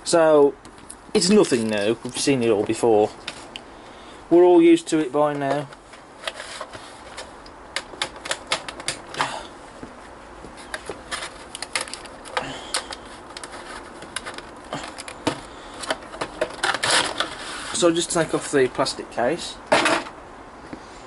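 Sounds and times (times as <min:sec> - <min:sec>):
plastic case clicking and crinkling: 0:05.4 - 0:09.3, 0:10.6 - 0:17.4.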